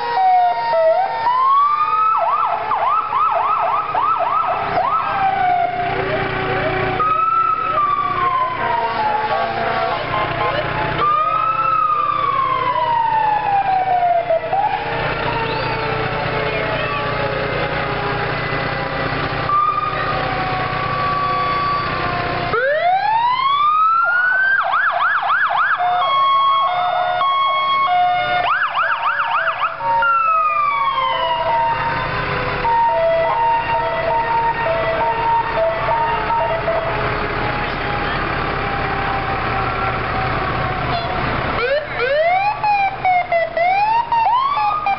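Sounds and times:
siren yelp: 0.0s - 18.5s, 19.1s - 44.9s
fire truck sirens wailing: 0.0s - 44.9s
hi-lo two-tone siren: 19.5s - 37.0s.

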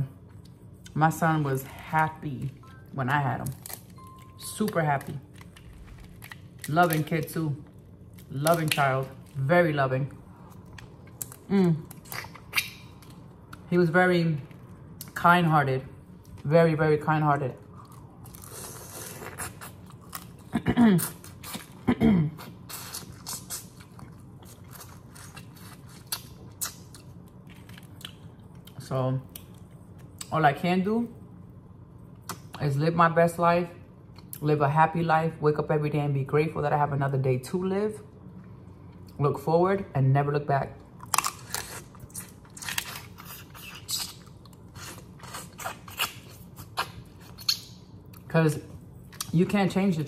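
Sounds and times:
shells cracking and chewing: 3.5s - 9.4s, 41.0s - 48.3s.

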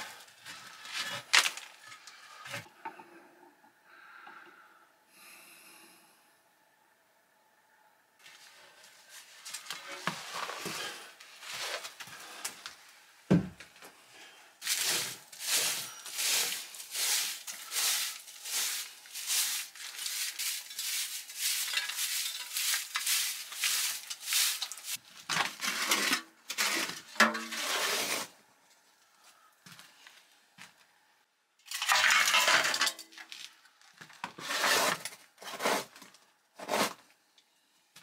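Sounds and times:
straw broom sweeping debris: 8.2s - 12.0s, 14.6s - 28.3s, 34.4s - 36.0s
heavy thump: 13.3s - 13.6s
scraping: 14.6s - 28.3s.

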